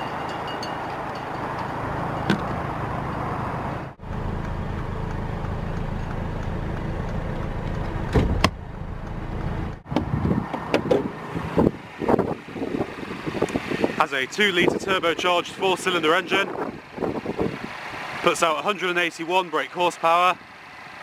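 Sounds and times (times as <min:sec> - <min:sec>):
steady low rumble: 0:02.4 - 0:18.0.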